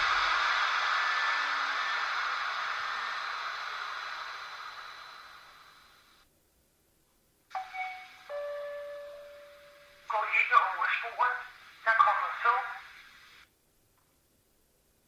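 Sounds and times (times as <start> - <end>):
cooling fan hiss: 0.0 - 15.0
two-note chime: 7.5 - 10.0.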